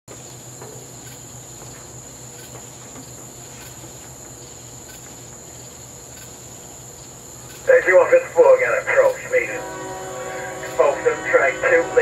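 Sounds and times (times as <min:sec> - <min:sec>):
night insects trilling: 0:00.1 - 0:12.0
low steady hum: 0:03.4 - 0:12.0.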